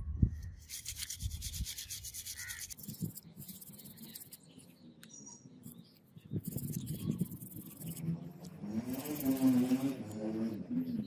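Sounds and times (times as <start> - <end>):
toothbrush scrubbing metal: 0.6 - 4.4, 6.4 - 8.1, 8.8 - 10.0.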